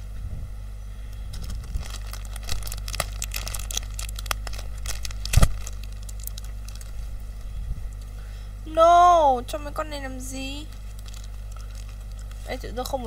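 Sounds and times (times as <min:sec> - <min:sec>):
plastic wrapper crinkling: 0:01.3 - 0:07.4, 0:10.6 - 0:13.0.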